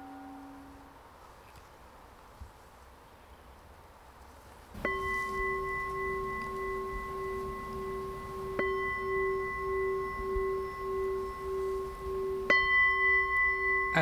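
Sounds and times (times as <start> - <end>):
singing bowl ringing: 0.0 - 0.9, 4.8 - 14.0.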